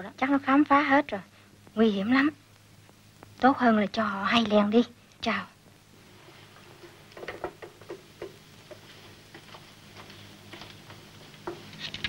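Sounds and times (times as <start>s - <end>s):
low steady hum: 0.0s - 12.0s
faint clicks and taps: 2.5s - 3.5s, 6.8s - 12.0s.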